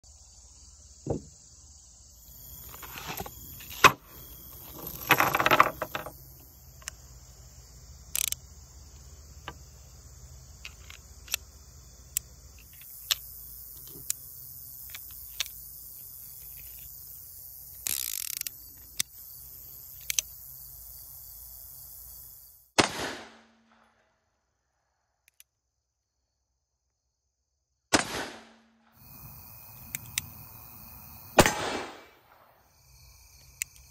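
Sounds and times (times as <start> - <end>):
brass cartridges clattering: 3.6 - 6.2.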